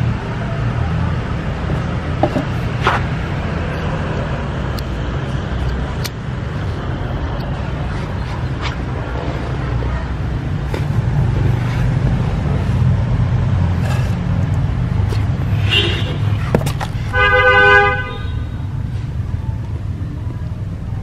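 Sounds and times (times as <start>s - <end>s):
road traffic rumble: 0.0s - 21.0s
car horn: 15.6s - 18.6s.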